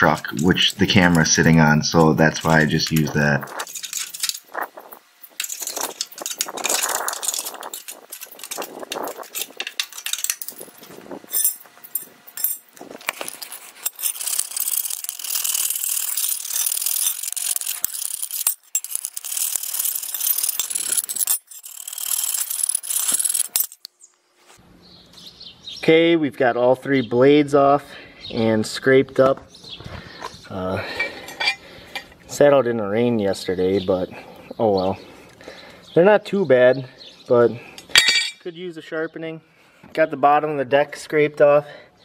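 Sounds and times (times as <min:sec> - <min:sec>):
screwdriver scraping metal: 0:02.0 - 0:04.6, 0:05.3 - 0:23.9.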